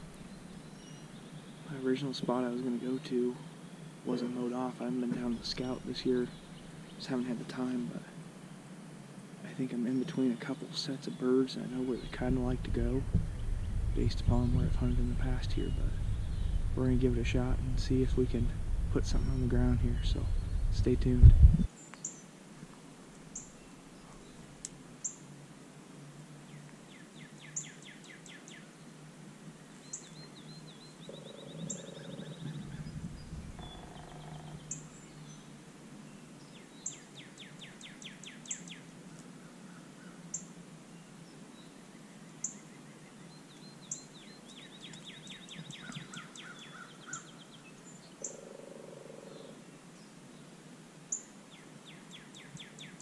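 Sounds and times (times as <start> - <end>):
songbirds chirping and trilling: 0.0 - 53.0
lower bird call: 11.1 - 22.2, 29.8 - 35.5, 42.4 - 49.6.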